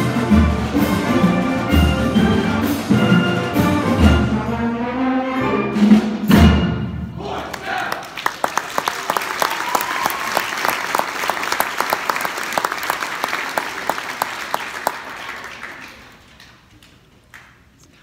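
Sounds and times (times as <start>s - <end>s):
audience applauding: 7.5s - 17.7s.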